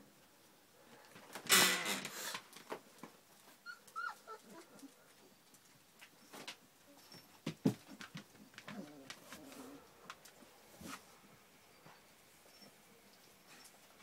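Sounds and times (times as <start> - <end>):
puppies whimpering: 3.6 - 4.9.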